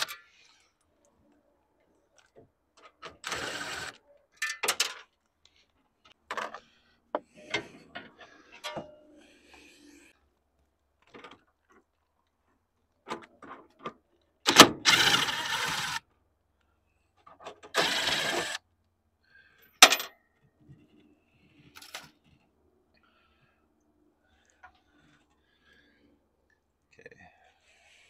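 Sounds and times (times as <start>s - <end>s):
cordless drill running: 3.2s - 4.0s, 14.5s - 16.0s, 17.7s - 18.6s.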